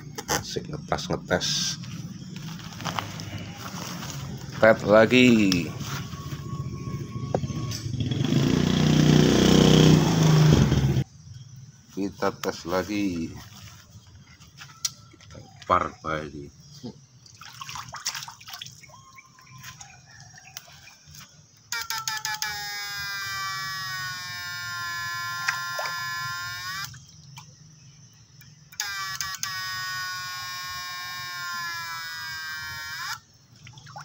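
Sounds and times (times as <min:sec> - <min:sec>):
high buzzing electrical whine: 0:21.6 - 0:27.1, 0:28.2 - 0:33.4.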